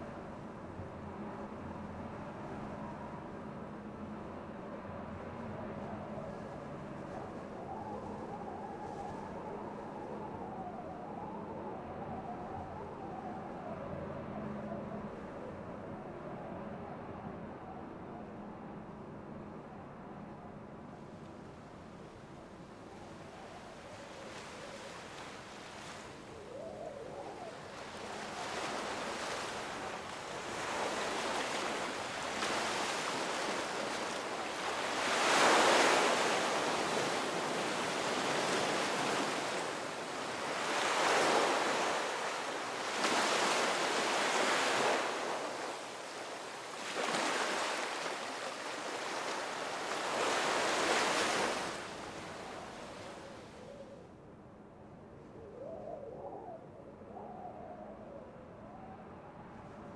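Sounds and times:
waves breaking on beach: 0:27.5 - 0:53.6.

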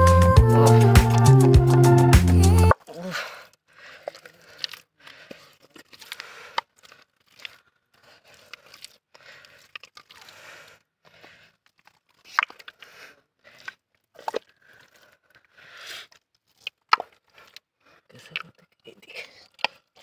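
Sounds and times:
sharp wet smacks: 0:01.0 - 0:01.3
hands squelching through mud: 0:03.4 - 0:18.8.

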